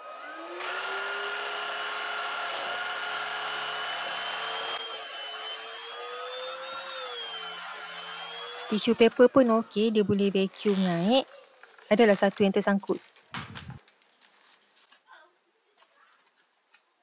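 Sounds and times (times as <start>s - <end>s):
vacuum cleaner motor whine: 0.0s - 10.8s.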